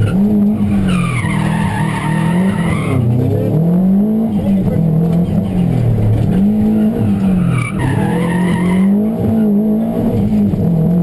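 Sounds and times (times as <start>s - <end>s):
tyre squeal: 0.0s - 3.1s, 7.0s - 9.1s
rally car engine revving: 0.0s - 11.0s.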